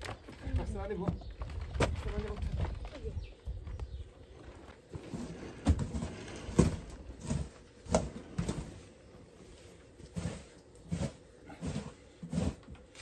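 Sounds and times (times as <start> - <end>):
plastic shovel scraping dirt: 4.9 - 8.9, 9.5 - 13.0.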